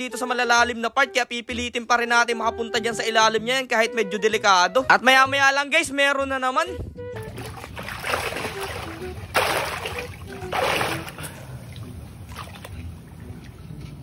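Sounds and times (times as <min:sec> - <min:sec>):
water splashing and sloshing: 0:07.2 - 0:14.0.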